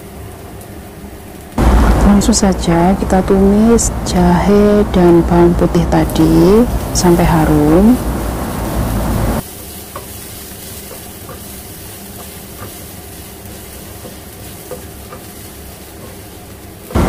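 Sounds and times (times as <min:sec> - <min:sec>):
garlic sizzling in oil: 0:05.9 - 0:17.0
spatula stirring in pan: 0:09.4 - 0:16.9.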